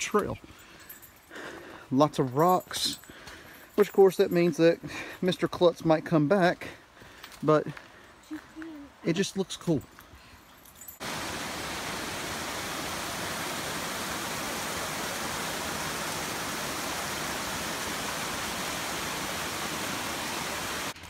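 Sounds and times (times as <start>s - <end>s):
stream running over rocks: 10.9s - 21.0s.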